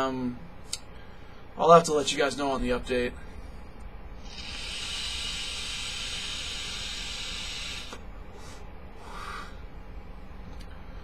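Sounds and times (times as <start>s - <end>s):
vape hissing: 4.2s - 9.5s.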